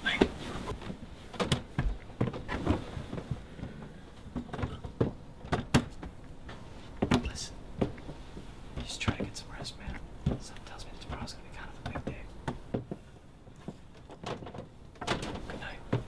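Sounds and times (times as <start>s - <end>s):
sharp knocks and thumps: 0.1s - 16.0s
quiet whispering: 6.7s - 7.6s, 8.8s - 12.4s, 15.4s - 16.0s.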